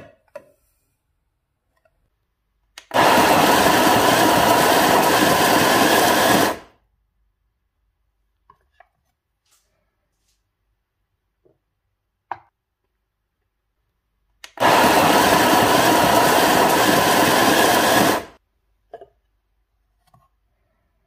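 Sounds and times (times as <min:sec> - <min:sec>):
coffee grinder grinding beans: 0:02.8 - 0:06.7, 0:14.5 - 0:18.4.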